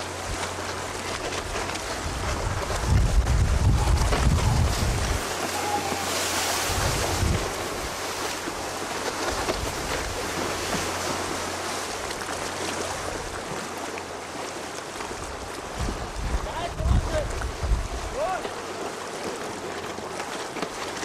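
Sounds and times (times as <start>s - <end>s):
choppy sea breaking: 0.0s - 21.0s
wind blowing across microphone: 1.9s - 8.0s, 15.7s - 18.4s.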